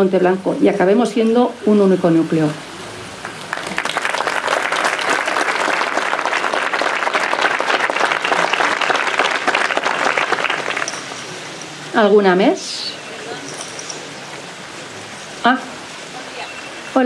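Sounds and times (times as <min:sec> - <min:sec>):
audience applauding: 0:03.2 - 0:11.2.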